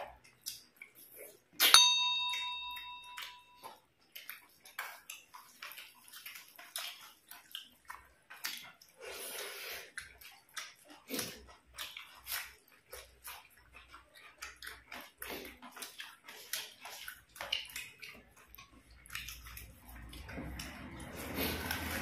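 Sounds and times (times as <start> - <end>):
mouths chewing: 0.0 - 22.0
wet squelching of hand eating: 3.2 - 22.0.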